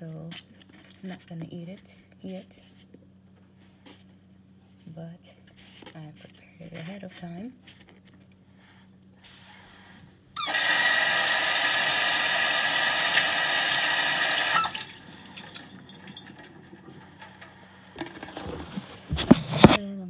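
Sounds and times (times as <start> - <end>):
water running from tap: 10.4 - 16.9.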